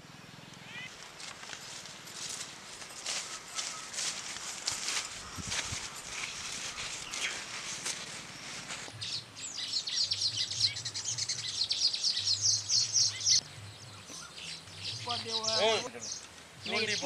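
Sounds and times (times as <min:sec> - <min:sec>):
small birds chirping rapidly: 0:00.0 - 0:17.0
footsteps rustling through plants: 0:00.9 - 0:10.3.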